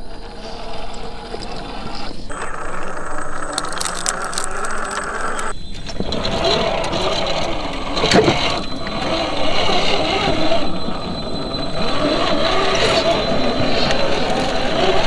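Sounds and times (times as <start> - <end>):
electric motor whine: 2.3 - 5.5
tyres clicking and rattling on rock: 2.3 - 5.5.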